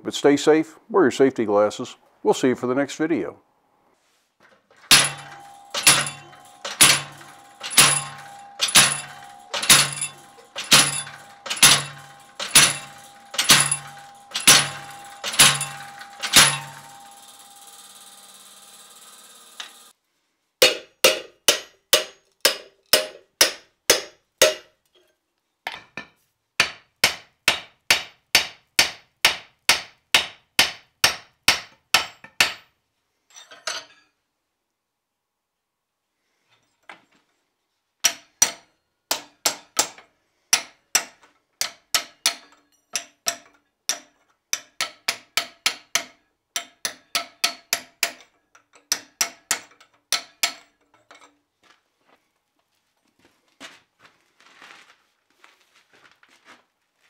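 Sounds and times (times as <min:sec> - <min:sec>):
hammer striking hot steel: 0:04.9 - 0:19.9, 0:20.6 - 0:24.7, 0:26.6 - 0:32.7, 0:38.0 - 0:48.3, 0:48.9 - 0:50.7.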